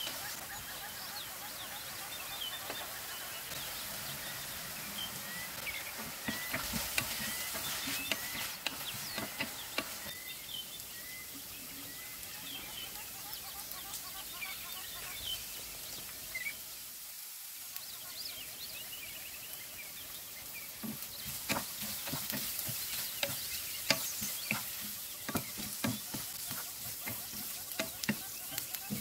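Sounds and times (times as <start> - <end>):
food sizzling in a frying pan: 0.0 - 29.0
wooden spatula scraping a pan: 4.9 - 10.2, 20.8 - 29.0.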